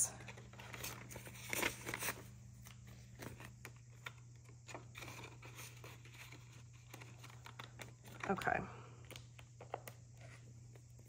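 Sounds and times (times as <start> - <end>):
faint steady hum: 0.0 - 11.0
paper banknotes rustling: 0.2 - 11.0.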